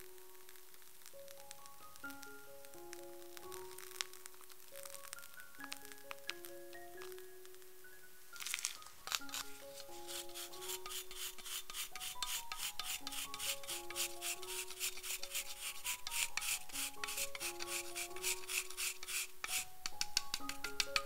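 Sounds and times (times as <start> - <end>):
chocolate being grated: 9.1 - 21.0.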